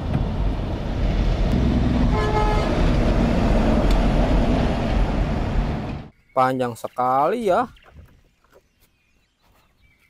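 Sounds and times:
truck engine and road rumble: 0.0 - 6.1
horn toot: 2.1 - 2.9.

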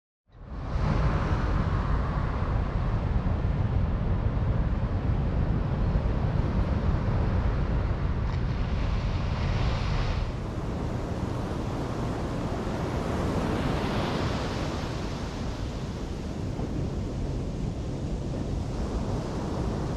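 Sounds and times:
wind buffeting microphone: 0.4 - 19.9
surf from breaking waves: 5.6 - 19.9.

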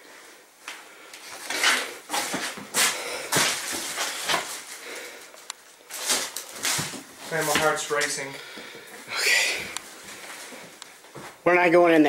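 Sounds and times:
person breathing hard: 2.7 - 5.5, 8.3 - 10.8.

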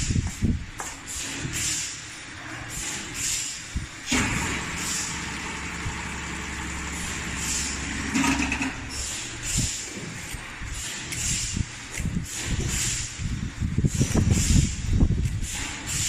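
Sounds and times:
pump motor humming: 4.1 - 9.7.

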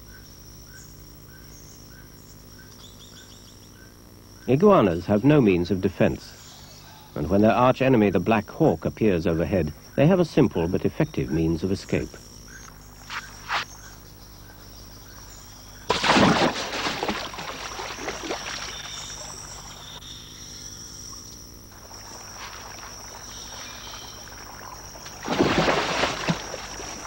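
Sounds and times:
heavy splash into river: 15.9 - 19.8, 21.8 - 27.0
water sloshing: 15.9 - 20.0, 21.1 - 27.0.

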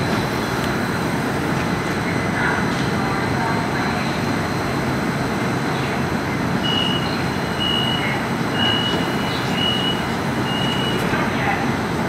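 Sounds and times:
light-rail car rumble and hum: 0.0 - 12.0
high electronic beeps: 8.6 - 11.0.

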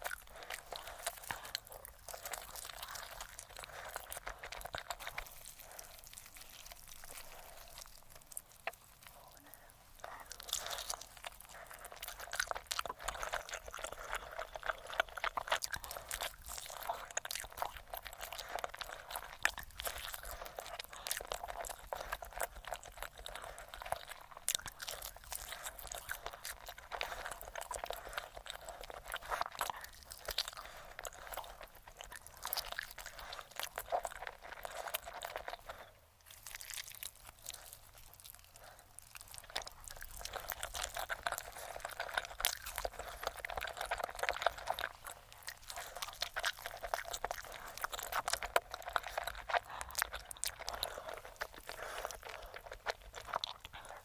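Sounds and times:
chewing and crunching chicken: 0.0 - 54.0.

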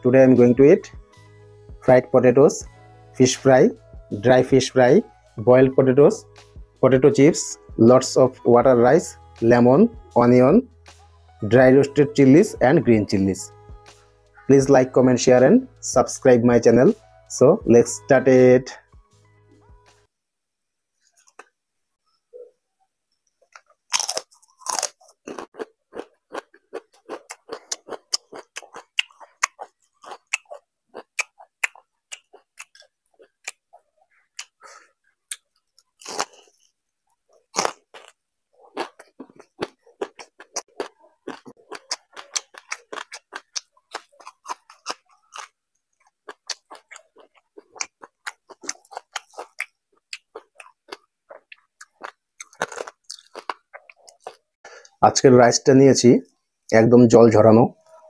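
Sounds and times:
crunchy chip chewing: 23.5 - 54.5.

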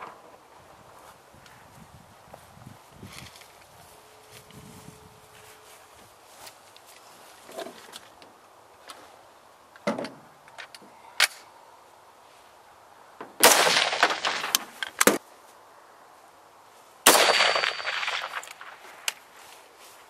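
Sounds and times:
rifle shots echoing: 13.4 - 15.2, 17.1 - 18.9.

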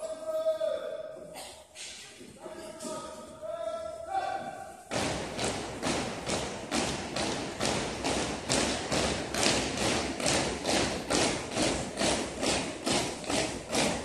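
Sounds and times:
boots stamping in unison: 4.9 - 14.0.

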